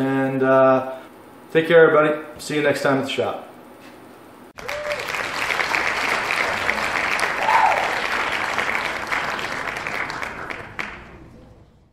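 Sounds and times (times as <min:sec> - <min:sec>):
crowd applause: 0:04.6 - 0:11.3
rising-and-falling cry: 0:06.7 - 0:08.3.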